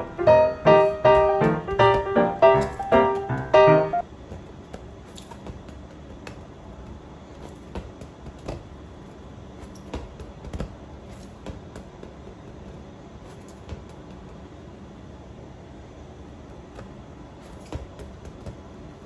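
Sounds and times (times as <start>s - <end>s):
piano music: 0.0s - 4.0s.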